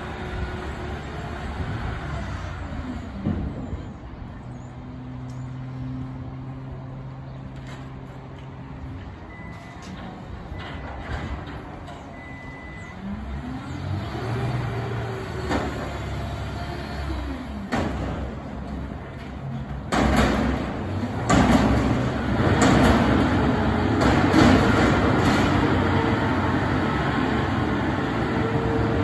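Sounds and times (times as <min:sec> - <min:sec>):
garbage truck engine revving: 0:19.5 - 0:29.0.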